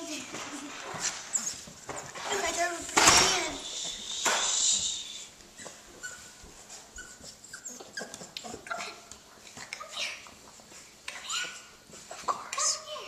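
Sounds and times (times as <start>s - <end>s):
puppies whimpering: 5.5s - 9.0s.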